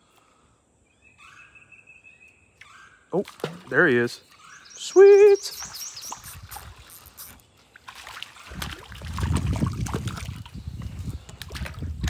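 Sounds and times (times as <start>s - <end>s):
water splashing and sloshing: 3.2s - 4.7s, 5.5s - 12.0s.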